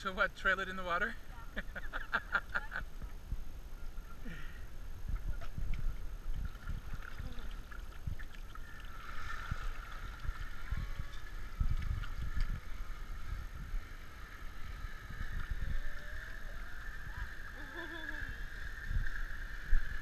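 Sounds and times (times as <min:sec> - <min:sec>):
water sloshing and splashing: 0:05.4 - 0:13.7.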